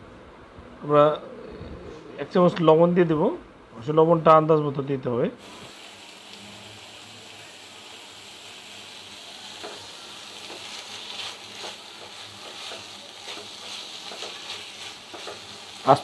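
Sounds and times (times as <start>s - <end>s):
meat sizzling in oil: 5.4s - 16.0s
spatula scraping a pan: 10.4s - 15.7s.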